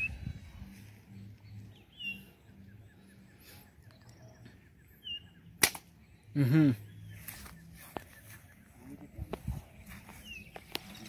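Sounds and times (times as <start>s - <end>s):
bird chirps: 0.0s - 11.0s
slingshot snap: 5.6s - 5.9s.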